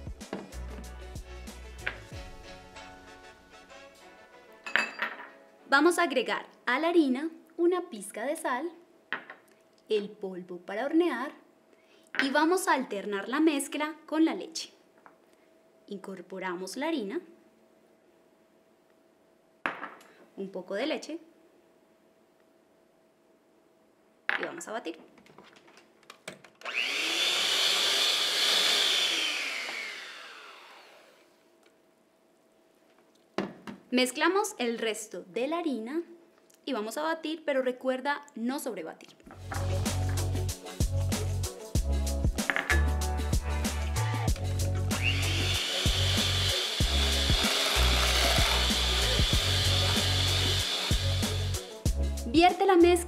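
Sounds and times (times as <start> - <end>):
background music: 0.0 - 6.2, 39.3 - 53.0
electric mixer motor running: 26.6 - 31.3, 45.0 - 51.6.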